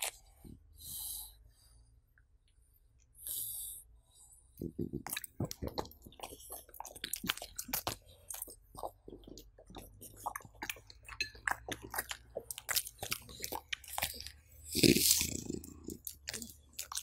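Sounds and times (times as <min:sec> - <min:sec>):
dog chewing food: 0:04.6 - 0:17.0.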